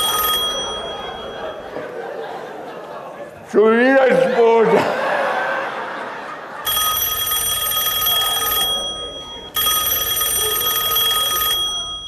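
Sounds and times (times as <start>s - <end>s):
telephone ringing: 0.0s - 2.1s, 6.6s - 12.0s.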